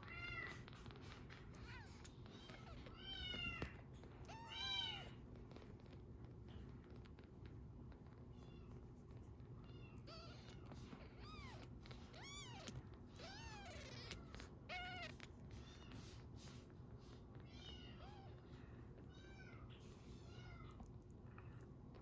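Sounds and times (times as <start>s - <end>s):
kitten purring: 0.0s - 22.0s
kitten mewing: 9.7s - 16.2s.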